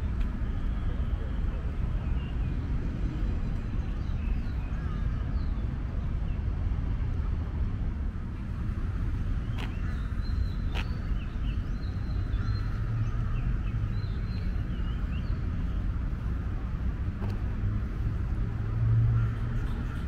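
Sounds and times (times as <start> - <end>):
distant city traffic rumble: 0.0 - 20.0
small birds chirping: 9.4 - 15.9.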